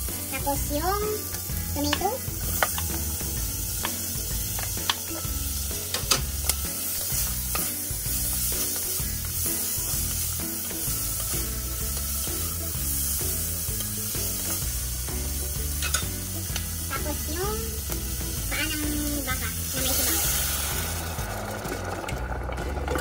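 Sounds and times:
vegetables sizzling in oil: 0.0 - 23.0
utensil tapping against pan: 3.8 - 5.2.

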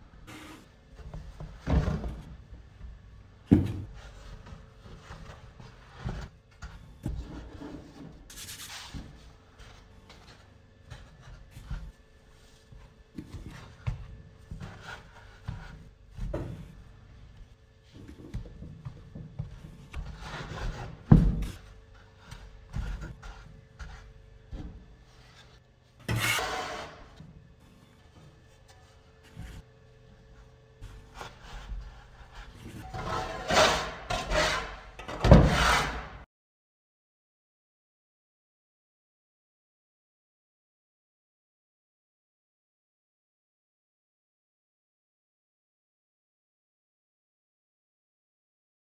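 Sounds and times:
hands rubbing dough in basket: 30.3 - 33.2.

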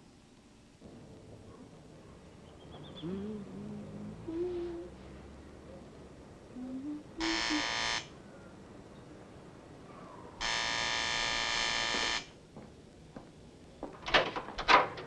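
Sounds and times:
electric doorbell buzzer: 7.2 - 8.1, 10.4 - 12.4.

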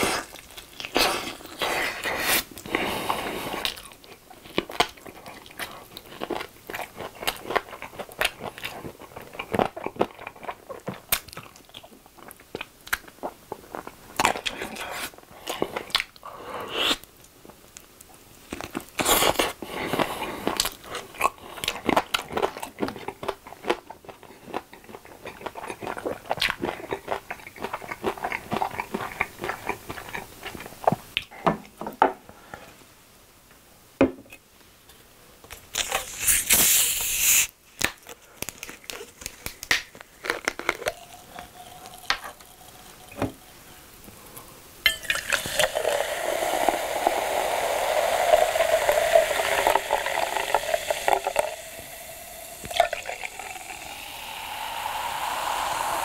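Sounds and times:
chewing crunchy fried chicken: 0.0 - 31.3, 37.8 - 44.2.

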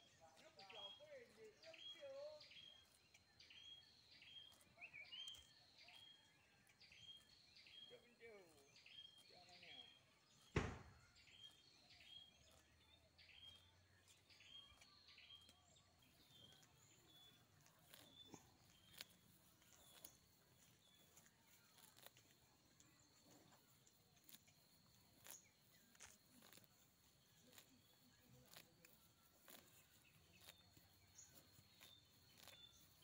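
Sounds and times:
bird chirping: 0.0 - 33.0
sharp knock: 10.6 - 11.0.

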